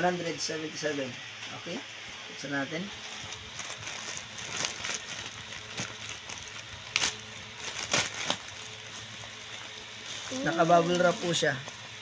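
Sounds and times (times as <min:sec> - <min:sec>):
plastic bag crinkling: 0:02.9 - 0:12.0
plastic bag ripping: 0:03.0 - 0:12.0.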